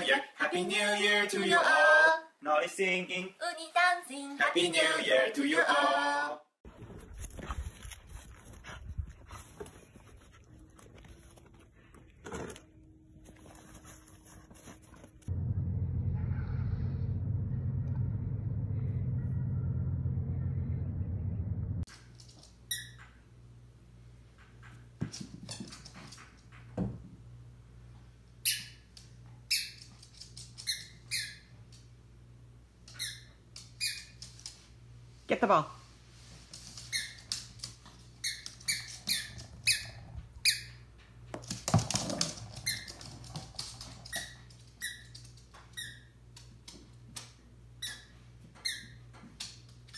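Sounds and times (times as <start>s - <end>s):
ball bouncing on hardwood floor: 25.0s - 26.0s, 26.6s - 27.2s, 41.3s - 43.8s.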